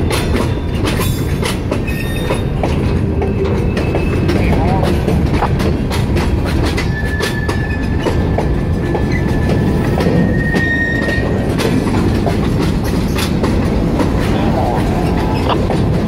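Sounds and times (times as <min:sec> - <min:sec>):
freight train rumbling: 0:00.0 - 0:16.0
wheels clicking over rail joints: 0:00.0 - 0:16.0
high wheel squeal: 0:06.8 - 0:08.1, 0:09.1 - 0:11.5.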